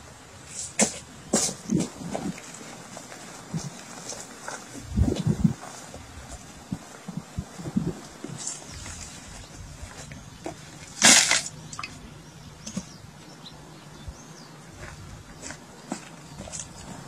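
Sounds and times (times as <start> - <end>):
sticks crashing onto stony ground: 10.9 - 11.9.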